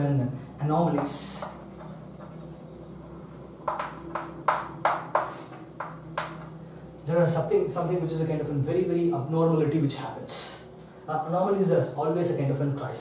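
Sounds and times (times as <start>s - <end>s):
chalk scratching on blackboard: 1.0s - 5.9s.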